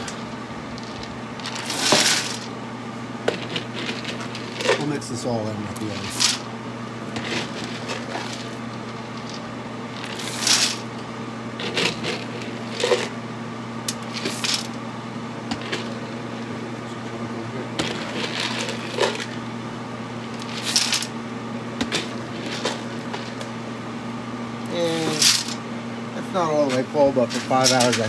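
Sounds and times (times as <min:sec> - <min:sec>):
pellets rattling in hopper: 0:00.0 - 0:02.5, 0:03.3 - 0:05.0, 0:05.8 - 0:06.5, 0:07.1 - 0:11.0, 0:11.6 - 0:13.1, 0:14.0 - 0:14.8, 0:15.5 - 0:16.1, 0:17.8 - 0:19.4, 0:20.3 - 0:21.2, 0:21.9 - 0:23.4, 0:24.7 - 0:25.6, 0:26.6 - 0:28.0
smoker hum: 0:00.0 - 0:28.0.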